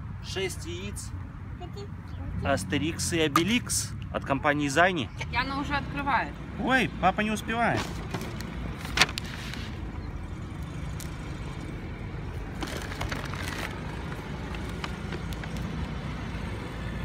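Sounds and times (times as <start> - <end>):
traffic hum: 0.0 - 17.0
foil wrapper crinkling: 12.6 - 15.7.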